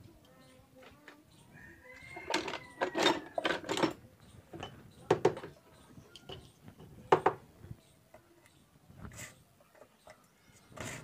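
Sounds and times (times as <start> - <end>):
tools clicking and knocking on workbench: 2.0 - 7.4.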